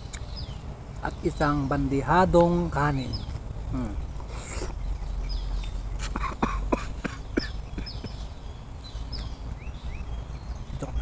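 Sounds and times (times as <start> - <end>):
bird chirping: 0.0 - 11.0.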